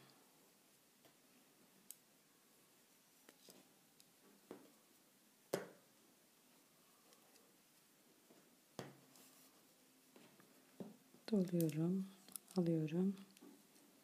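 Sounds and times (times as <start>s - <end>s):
knitting needles clicking: 11.2s - 13.5s.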